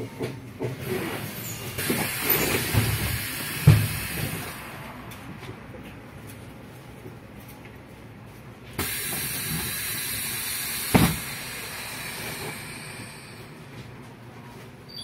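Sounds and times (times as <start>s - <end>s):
bus interior rumble: 0.0s - 15.0s
bus doors thudding: 0.2s - 5.5s, 8.8s - 13.2s
air hiss of bus doors: 0.8s - 5.0s, 8.8s - 13.7s.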